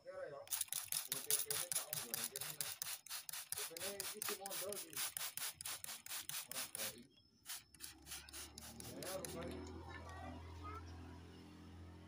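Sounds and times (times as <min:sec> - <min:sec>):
fast rubbing strokes: 0:00.5 - 0:09.6.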